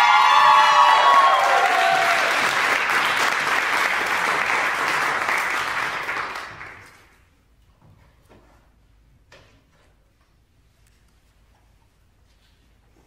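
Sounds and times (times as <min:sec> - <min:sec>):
audience cheering: 0:00.0 - 0:06.6
audience applauding: 0:00.0 - 0:07.2.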